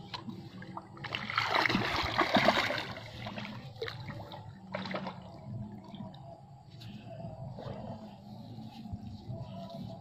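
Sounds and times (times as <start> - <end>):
fish splashing at water surface: 1.0 - 5.4.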